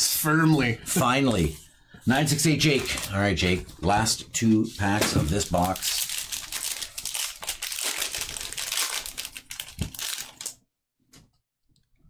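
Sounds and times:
foil wrapper crinkling: 5.3 - 10.6.

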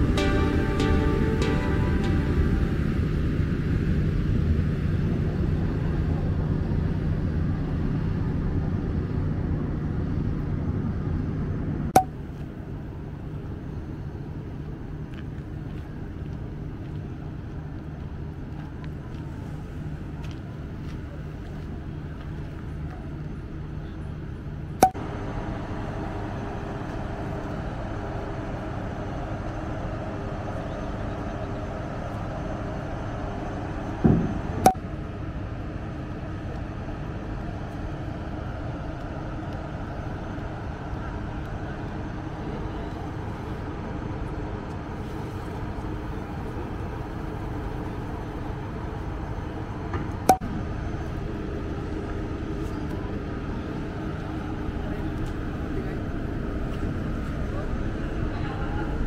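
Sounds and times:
ferry engines droning: 0.0 - 59.0
short thud: 34.0 - 34.4.

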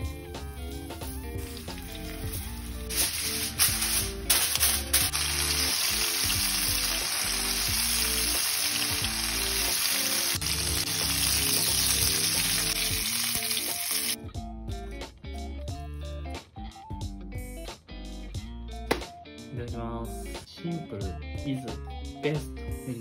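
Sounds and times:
chicken sizzling in frying oil: 0.0 - 14.2
background music: 0.0 - 23.0
aluminium foil crackling: 1.3 - 14.2.

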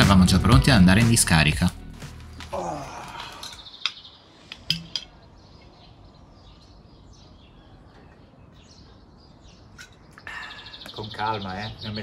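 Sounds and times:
faint birdsong: 2.2 - 12.0
glass bottle clinking: 4.6 - 5.1.

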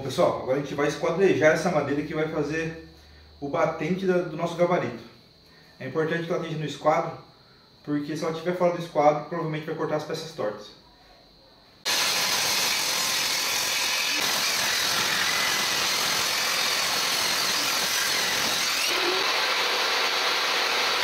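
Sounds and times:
table saw cutting wood: 11.9 - 21.0.

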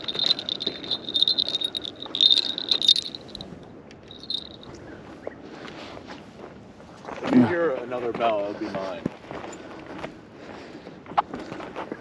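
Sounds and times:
fishing rod bell jingling: 0.0 - 4.8.

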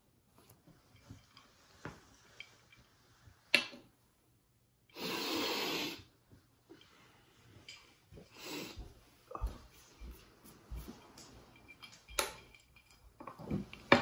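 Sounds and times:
person sniffing hard: 5.0 - 6.1, 8.3 - 8.8.

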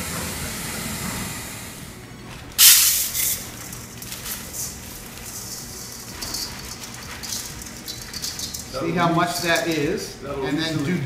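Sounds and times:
rice pouring into metal bowl: 2.6 - 8.8.

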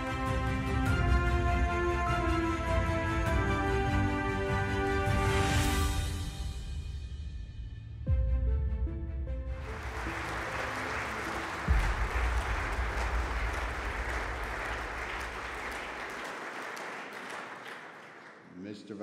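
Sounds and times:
music soundtrack: 0.0 - 16.9
audience applauding: 9.6 - 18.6.

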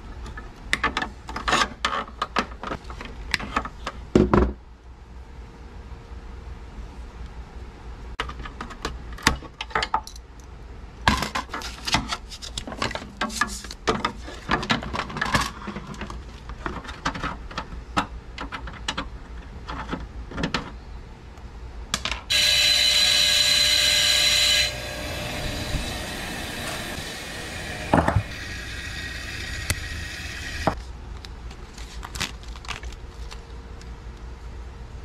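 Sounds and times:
bench grinder grinding wire: 22.3 - 30.8.

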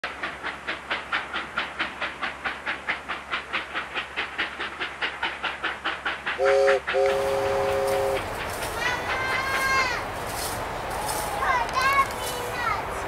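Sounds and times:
steam train chugging: 0.0 - 13.0
steam train whistle blasts: 6.4 - 8.3.

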